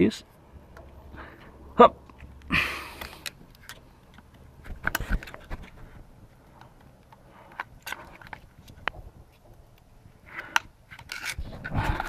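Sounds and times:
rustling scrape: 10.4 - 12.0.

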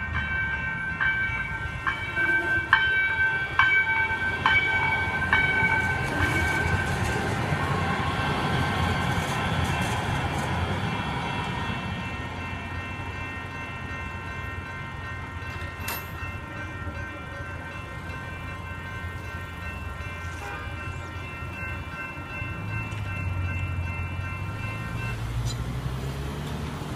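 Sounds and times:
light rail train rumbling past: 0.0 - 26.9
railroad crossing bells ringing: 0.0 - 26.9.

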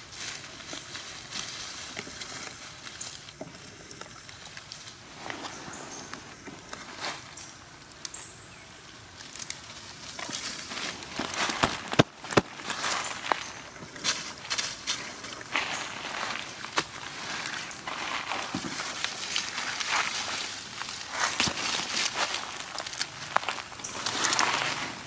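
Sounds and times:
dry leaves rustling and crackling: 0.0 - 8.3, 9.2 - 25.0.

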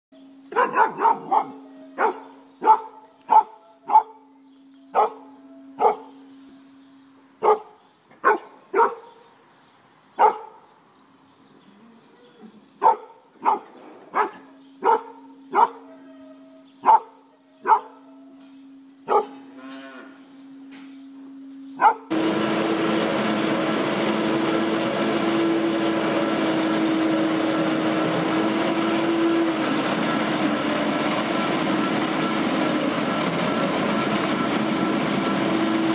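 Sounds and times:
faint motor hum: 0.2 - 35.9
dog barking: 0.5 - 4.3, 4.9 - 6.1, 7.4 - 9.2, 10.2 - 10.6, 12.8 - 15.9, 16.8 - 18.1, 19.1 - 19.4, 21.8 - 22.1
loud steady machine noise: 20.7 - 35.9.

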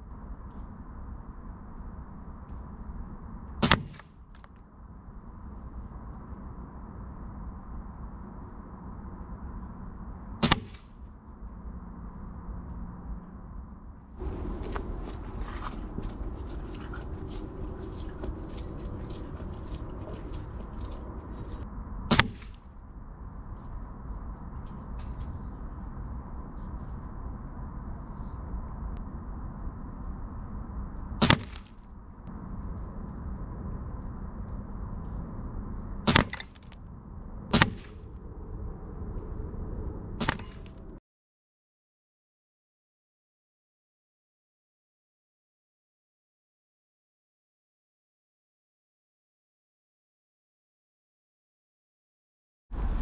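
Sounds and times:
air rifle shot: 3.6 - 4.2, 10.4 - 10.9, 22.1 - 22.6, 31.2 - 31.7, 37.5 - 38.0
pellet striking target: 3.6 - 4.2, 10.4 - 10.9, 22.1 - 22.6, 31.2 - 31.7, 36.1 - 36.6.

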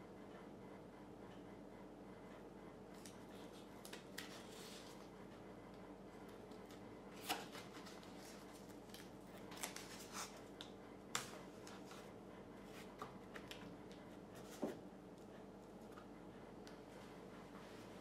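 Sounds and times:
faint steady hum: 0.0 - 18.0
tape crackles and taps: 3.8 - 4.4, 5.7 - 12.1, 12.8 - 16.8.

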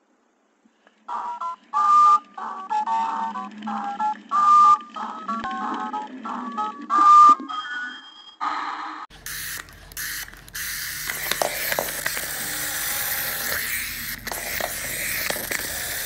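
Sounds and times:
toy engine whirring on wooden floor: 9.1 - 16.0.

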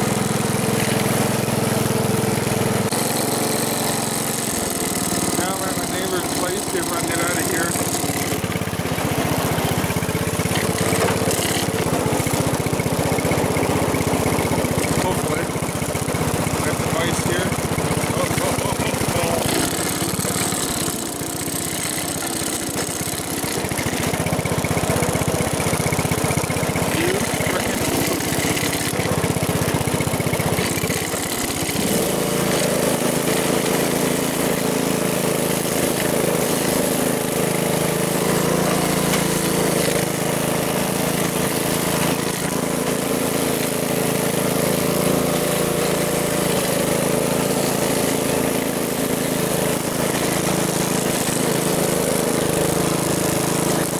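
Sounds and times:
car engine idling: 4.1 - 31.8.

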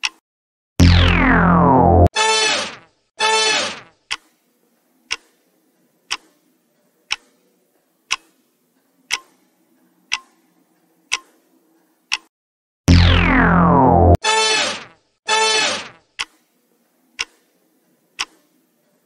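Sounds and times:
clock ticking: 0.0 - 0.2, 4.1 - 4.3, 5.1 - 5.3, 6.1 - 6.3, 7.1 - 7.3, 8.1 - 8.4, 9.1 - 9.4, 10.1 - 10.4, 11.1 - 11.3, 12.1 - 12.3, 16.2 - 16.4, 17.2 - 17.4, 18.2 - 18.4.

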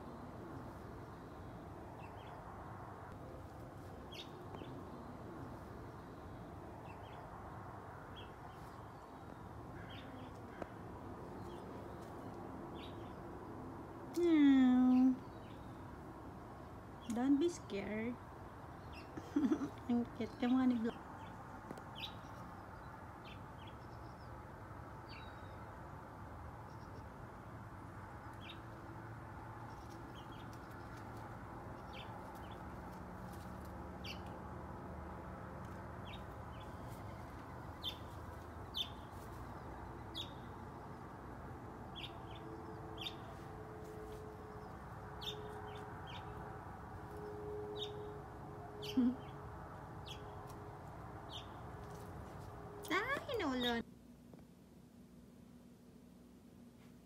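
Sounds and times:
birds chirping: 3.8 - 34.5, 35.7 - 53.8.

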